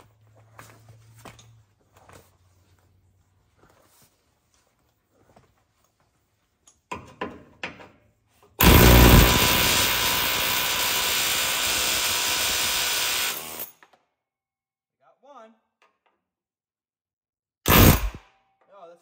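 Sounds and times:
pneumatic air hammer: 0:08.6 - 0:13.8, 0:17.7 - 0:18.2.

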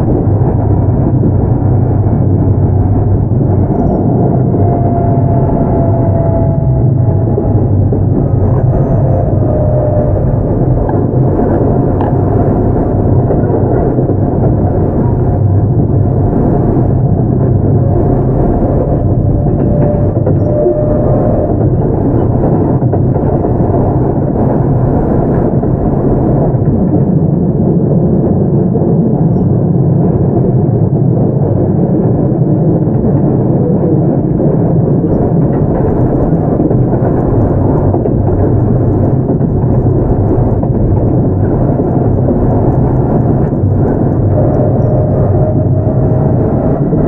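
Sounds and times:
train wheels rumbling on rails: 0:00.0 - 0:47.0.

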